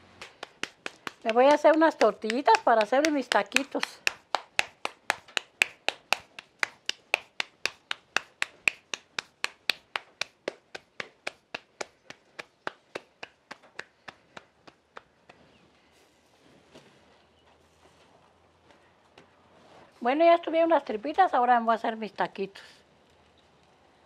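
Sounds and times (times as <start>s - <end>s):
hands slapping dough: 0.2s - 15.4s.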